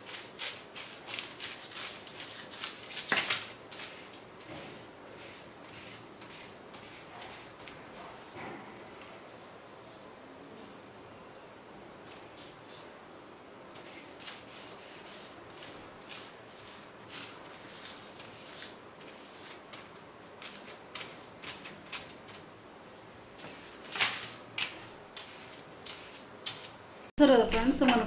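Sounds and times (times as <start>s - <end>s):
paper swishing and rustling: 0.0s - 8.3s, 23.4s - 26.8s.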